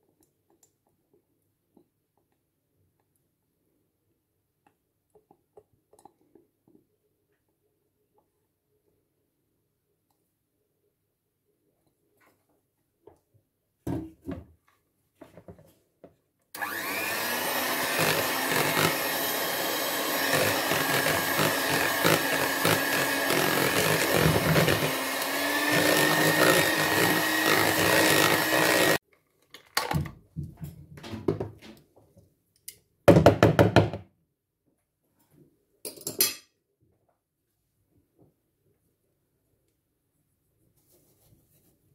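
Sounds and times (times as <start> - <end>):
electric hand mixer whining: 16.6 - 29.0.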